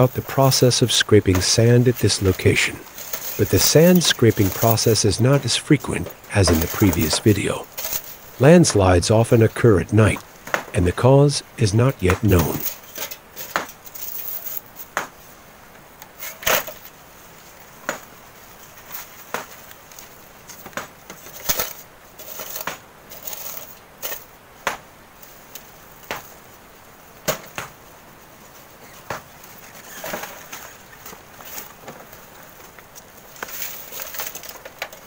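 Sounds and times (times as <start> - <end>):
shovel scraping sand and gravel: 0.0 - 8.0.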